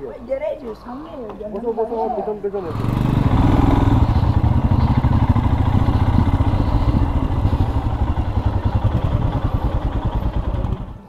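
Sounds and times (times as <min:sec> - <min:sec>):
motorcycle engine running: 0:02.6 - 0:11.0.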